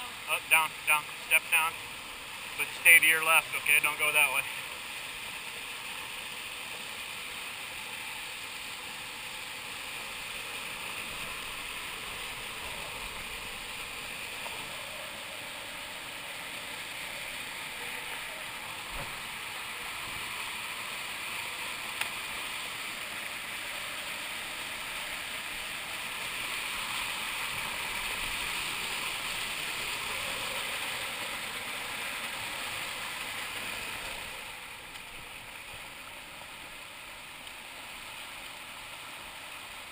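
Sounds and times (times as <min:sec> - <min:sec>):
river rushing over waterfall: 0:08.0 - 0:39.9.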